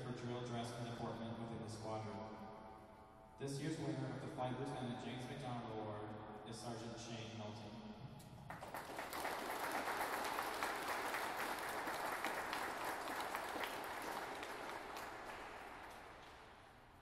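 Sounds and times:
audience applauding: 8.5s - 16.8s.

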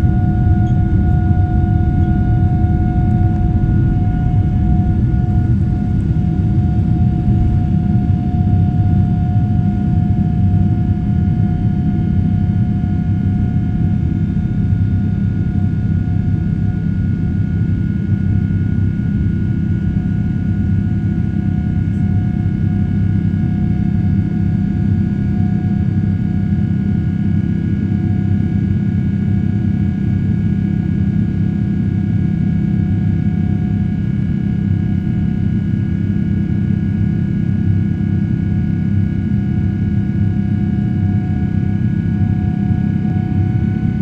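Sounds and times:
engine whining tones: 0.0s - 8.2s
jet engine roar: 0.0s - 12.2s.

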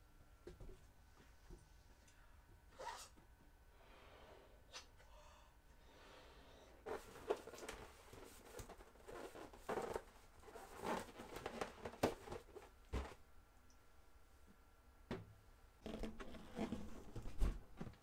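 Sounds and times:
balloon rubber squeaking: 15.8s - 17.0s.

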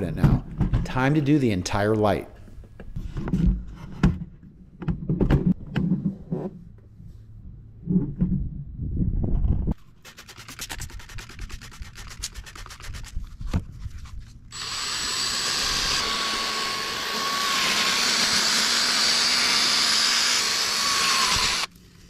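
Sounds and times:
drill wet-sanding plastic: 14.5s - 21.7s.

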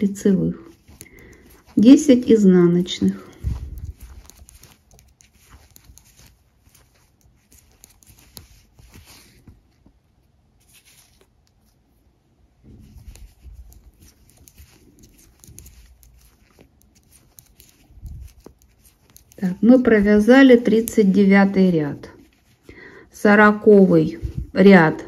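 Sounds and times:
yarn rubbing: 0.0s - 25.0s
knitting needles clicking: 0.7s - 9.3s, 12.8s - 21.5s.

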